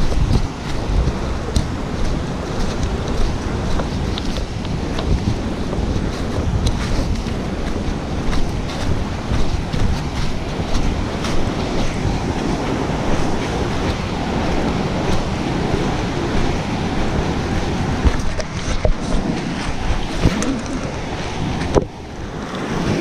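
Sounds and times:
footsteps crunching dry leaves: 0:00.0 - 0:17.2
stream rushing over rocks: 0:00.0 - 0:23.0.

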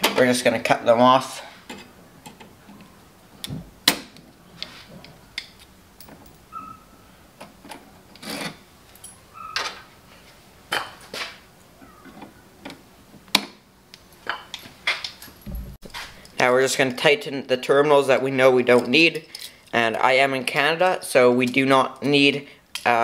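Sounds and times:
wire rustling: 0:14.1 - 0:16.4.

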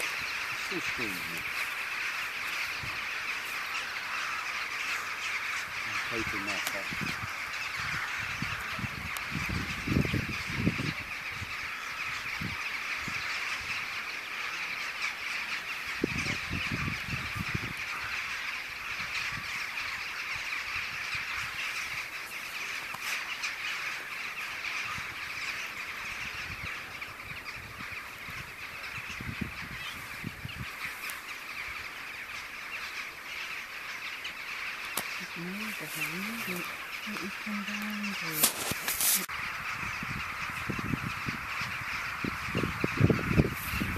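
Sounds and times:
rooks cawing: 0:00.0 - 0:43.9.

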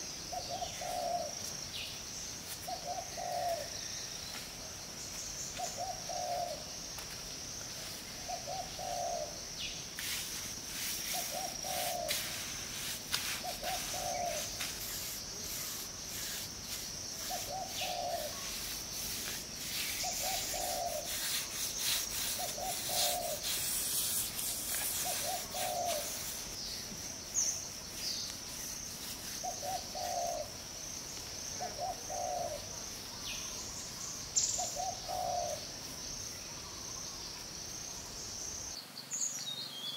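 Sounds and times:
insects buzzing: 0:00.0 - 0:39.9
dove cooing: 0:00.4 - 0:01.3, 0:02.8 - 0:03.7, 0:05.8 - 0:06.6, 0:08.3 - 0:09.3, 0:13.4 - 0:14.5, 0:17.3 - 0:18.4, 0:20.0 - 0:21.2, 0:22.4 - 0:23.7, 0:25.0 - 0:26.2, 0:29.4 - 0:30.5, 0:31.6 - 0:32.6, 0:34.7 - 0:35.6
scraping and rustling: 0:18.4 - 0:26.5.

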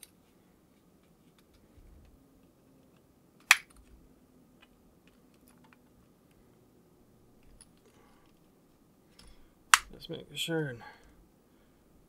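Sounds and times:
sharp plastic snap: 0:03.4 - 0:03.8, 0:09.7 - 0:10.0.

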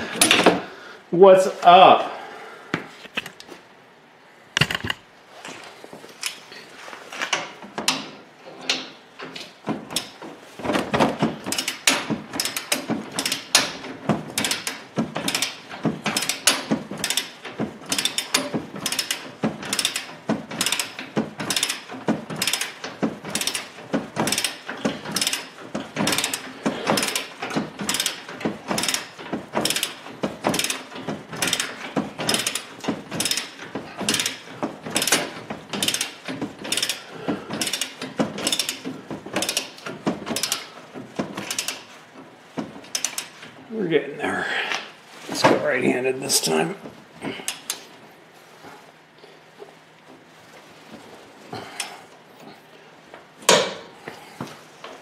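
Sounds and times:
ratchet wrench clicking: 0:11.5 - 0:23.7, 0:24.3 - 0:28.2, 0:28.8 - 0:34.4, 0:35.0 - 0:40.7, 0:41.4 - 0:41.8, 0:42.9 - 0:43.4.

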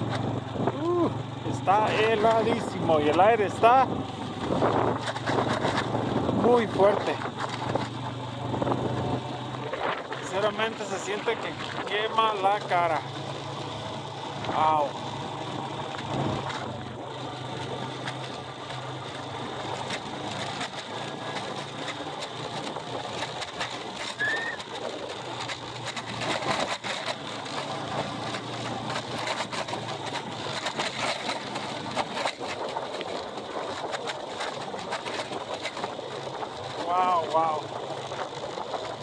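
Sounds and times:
heavy wind noise: 0:00.0 - 0:12.2
vehicle engine running: 0:00.0 - 0:39.0
clicks and rattles: 0:04.6 - 0:06.0, 0:17.9 - 0:39.0
short high squeak: 0:24.1 - 0:24.6.

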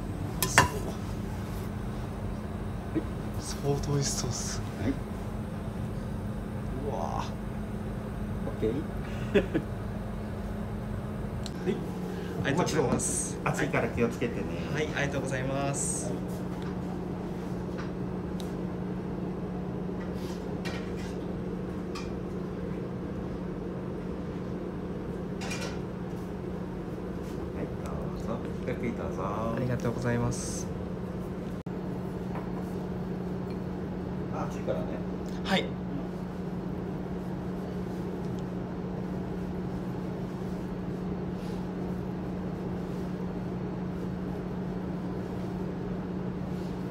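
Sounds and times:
machinery humming: 0:00.0 - 0:20.6
kitchen machinery humming: 0:00.0 - 0:46.9.

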